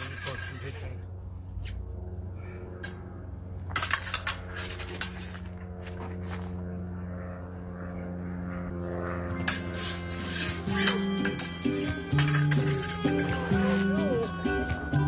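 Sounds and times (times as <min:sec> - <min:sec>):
sabers clashing: 0:02.8 - 0:06.0, 0:09.4 - 0:14.0.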